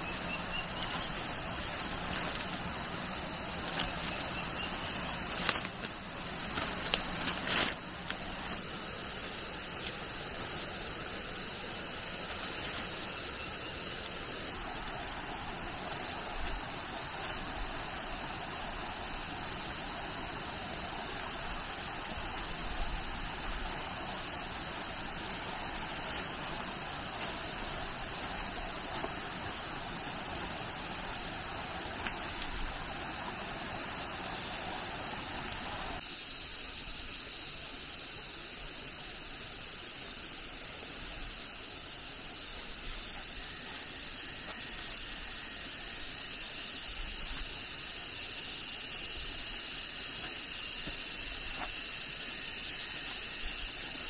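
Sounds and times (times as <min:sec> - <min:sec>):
running water rushing: 0:00.0 - 0:36.0.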